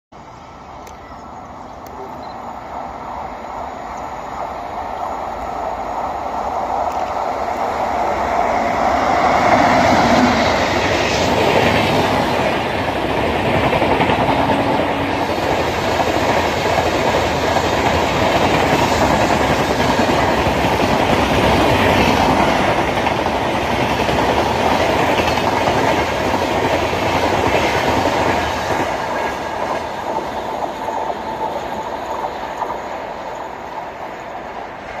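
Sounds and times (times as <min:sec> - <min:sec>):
electric locomotive passing: 0:00.2 - 0:35.0
train wheels clattering on rails: 0:09.0 - 0:34.3.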